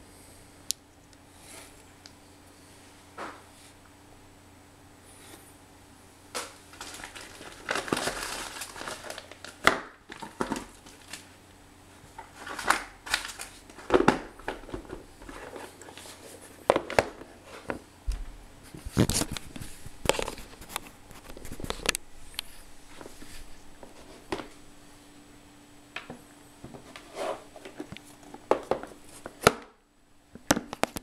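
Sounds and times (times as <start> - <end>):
plastic crinkling: 6.3 - 11.4, 12.1 - 17.8, 18.7 - 24.1.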